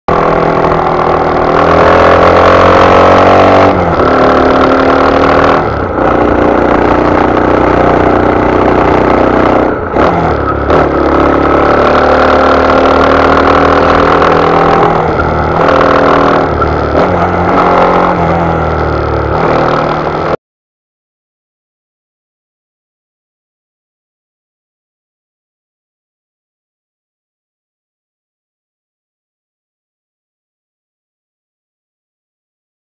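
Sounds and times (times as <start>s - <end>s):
motorcycle engine revving: 0.1s - 20.4s.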